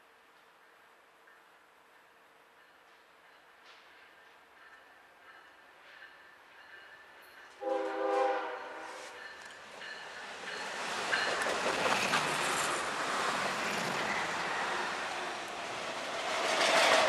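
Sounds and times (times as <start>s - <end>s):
train horn blast: 7.6s - 9.2s.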